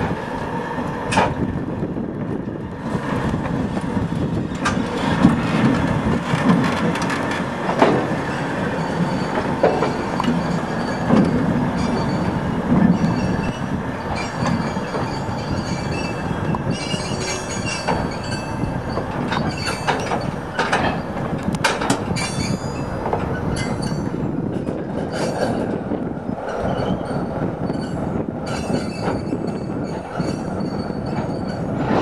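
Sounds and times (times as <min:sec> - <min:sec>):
wheel squeal: 0:08.3 - 0:21.1, 0:22.1 - 0:24.1, 0:26.5 - 0:32.0.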